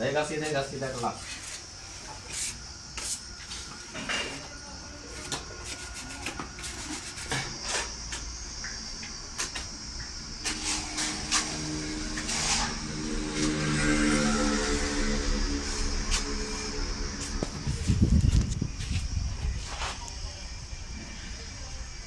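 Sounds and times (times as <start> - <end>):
tiling work clicks and scrapes: 10.4 - 11.6
background music sustained notes: 11.1 - 17.7.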